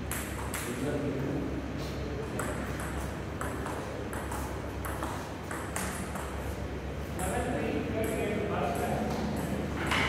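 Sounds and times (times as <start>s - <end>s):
low hum of hall: 0.0s - 10.0s
table tennis ball clicking: 2.4s - 6.4s.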